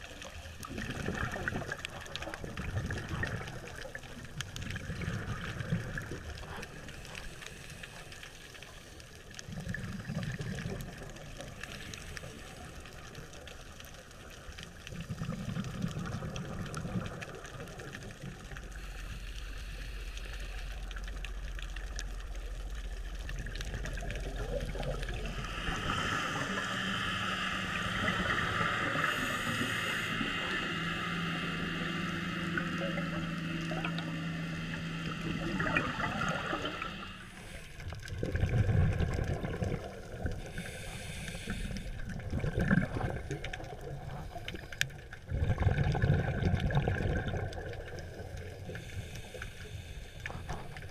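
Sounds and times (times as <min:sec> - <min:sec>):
low steady hum: 0:00.0 - 0:50.9
underwater exhaled bubbles: 0:00.0 - 0:50.9
steady hiss: 0:18.5 - 0:21.6, 0:24.6 - 0:37.9, 0:40.2 - 0:42.0, 0:48.0 - 0:50.9.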